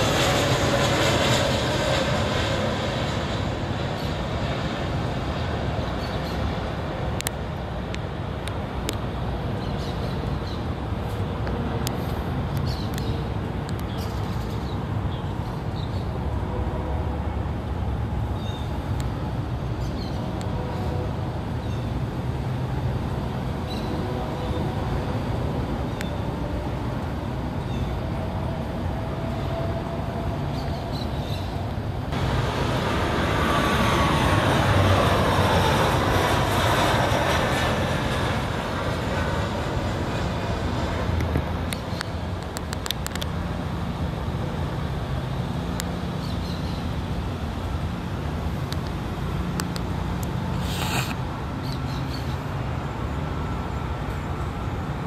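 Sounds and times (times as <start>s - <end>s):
jet airliner passing: 0.0s - 55.0s
steady low rumble: 25.0s - 46.0s.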